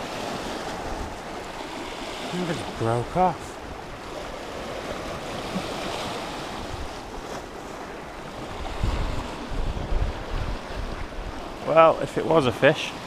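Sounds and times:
small waves breaking on rocks: 0.0 - 13.0
wind buffeting microphone: 3.6 - 11.7.

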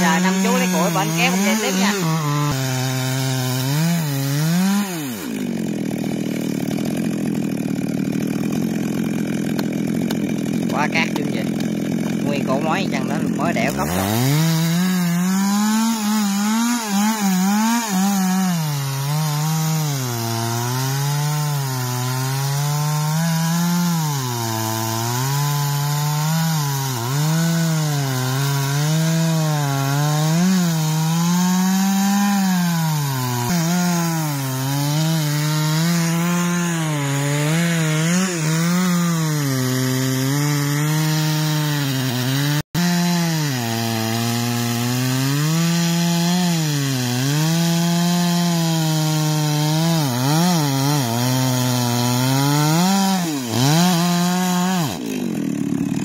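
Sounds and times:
chainsaw cutting tree trunk: 0.0 - 56.0.

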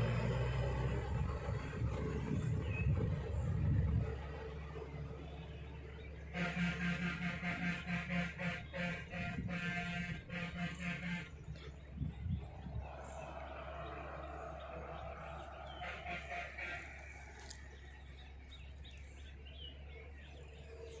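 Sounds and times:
steady low rumble: 0.0 - 21.0
small birds chirping: 7.0 - 21.0.

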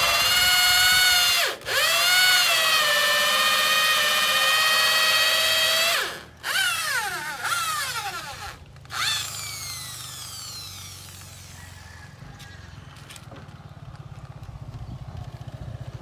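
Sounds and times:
electric drill cutting wood: 0.0 - 11.8.

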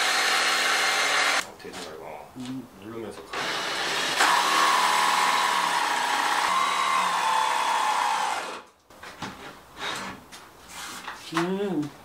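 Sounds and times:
jigsaw sawing plywood: 0.0 - 1.4, 3.4 - 8.7.

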